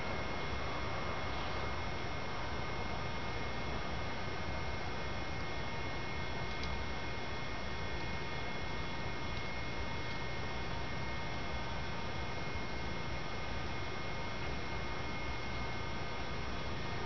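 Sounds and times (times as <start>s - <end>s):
electrical hum and hiss: 0.0s - 17.0s.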